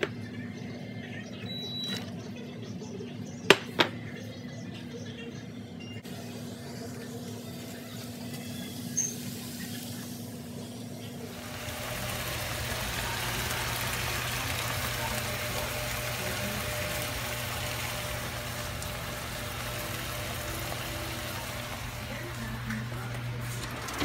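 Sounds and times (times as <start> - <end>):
food sizzling in frying pans: 6.0 - 24.0.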